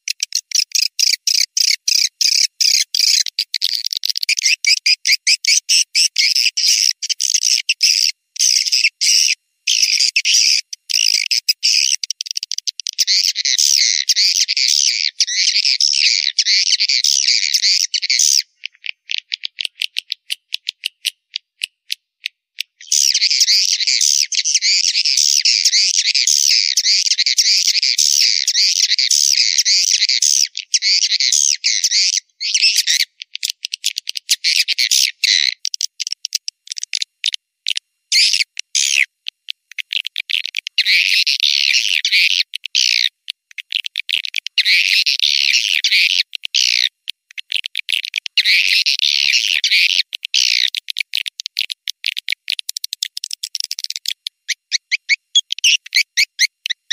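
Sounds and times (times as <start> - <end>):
high chittering swiftlet calls: 0.0 - 22.0, 22.6 - 56.9
sharp clicks: 18.6 - 22.8, 46.2 - 48.4.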